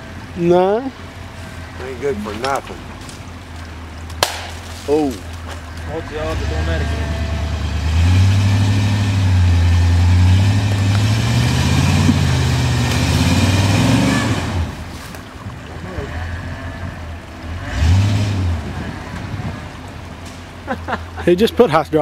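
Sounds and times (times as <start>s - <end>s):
engine running at high revs: 5.9s - 14.9s, 15.8s - 19.9s.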